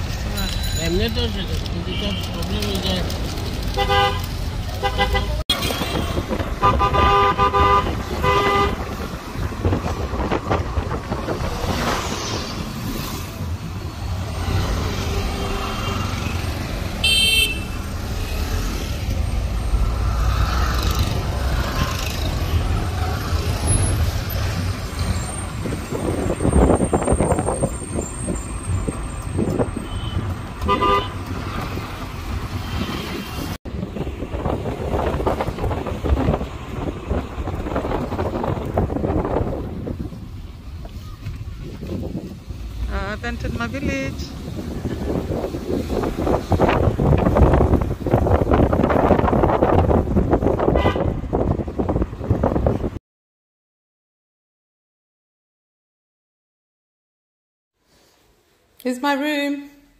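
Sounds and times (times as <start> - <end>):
road and engine rumble: 0.0 - 53.0
vehicle horn honks: 4.8 - 8.8, 17.0 - 17.8, 29.8 - 31.2, 50.7 - 51.2.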